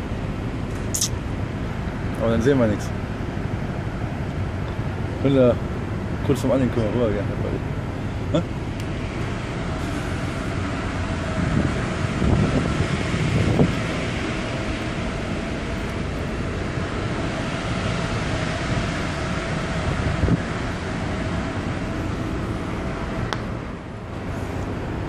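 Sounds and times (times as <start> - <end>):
ship machinery hum: 0.0 - 25.0
wind buffeting microphone: 8.9 - 25.0.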